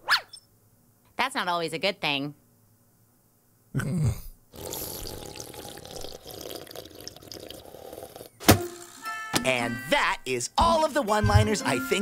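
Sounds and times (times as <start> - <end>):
cartoon noisy slurping drink: 4.5 - 9.0.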